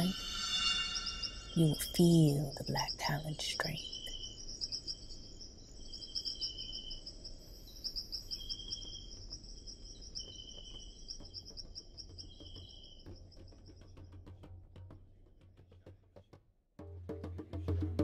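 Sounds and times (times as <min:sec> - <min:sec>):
insects trilling chorus: 0:00.0 - 0:14.1
lower short insect trill: 0:00.0 - 0:14.1.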